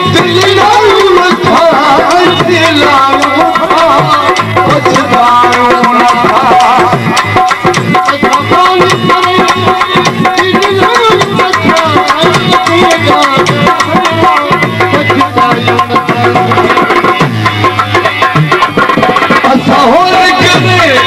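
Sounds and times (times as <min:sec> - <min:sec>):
hand drum rhythm: 0:00.0 - 0:21.0
ornamented folk melody instrument: 0:00.0 - 0:21.0.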